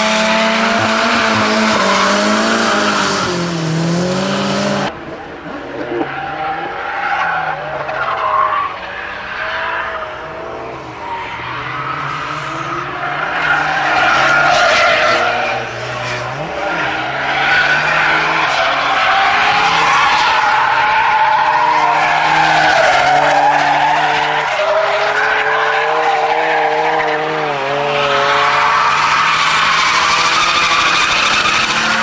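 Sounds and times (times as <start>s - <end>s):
car engines revving: 0.0s - 32.0s
tyre squeal: 16.8s - 32.0s.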